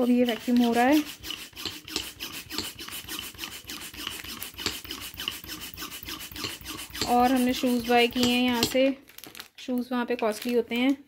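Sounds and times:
hand pump plunger scraping strokes: 0.0 - 8.8.

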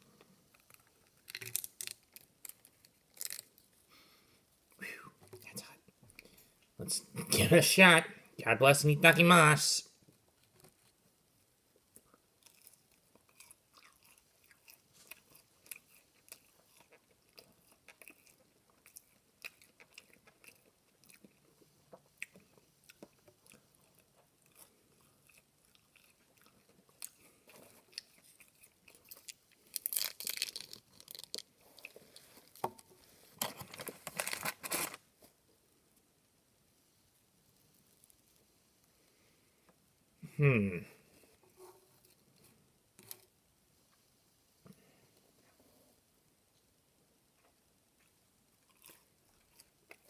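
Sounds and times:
chewing crunches: 0.6 - 3.6, 12.0 - 32.6, 48.0 - 50.0.

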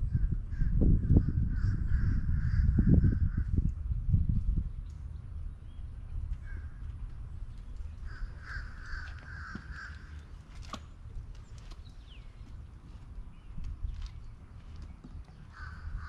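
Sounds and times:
low steady rumble: 0.0 - 16.0
bird harsh calls: 8.0 - 10.4, 15.4 - 16.0.

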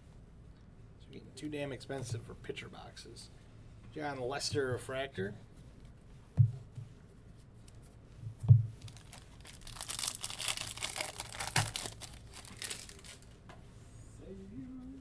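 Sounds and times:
foil wrapper tearing and crinkling: 8.8 - 13.3.

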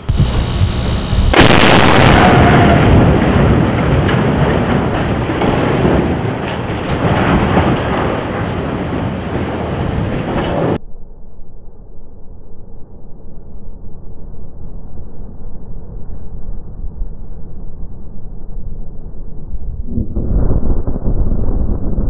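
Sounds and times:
loud explosive blast: 0.0 - 10.8, 19.8 - 22.0
rolling rumble with cracks: 0.0 - 10.8, 19.8 - 22.0.

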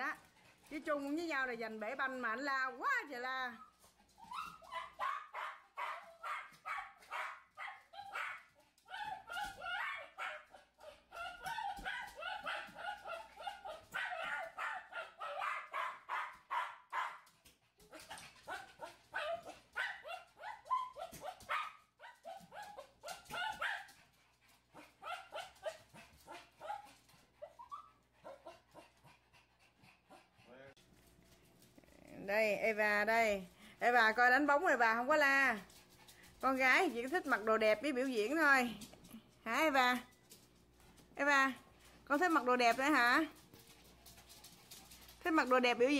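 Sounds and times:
small dog barking: 4.3 - 17.2, 18.5 - 23.9, 25.0 - 26.9.

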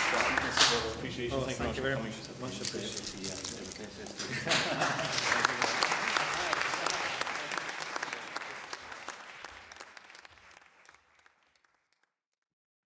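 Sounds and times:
audience applauding: 0.0 - 1.0, 4.2 - 12.1.

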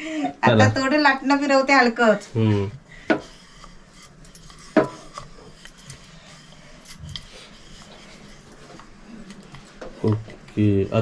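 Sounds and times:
rolling pin rubbing on dough: 2.5 - 10.0.

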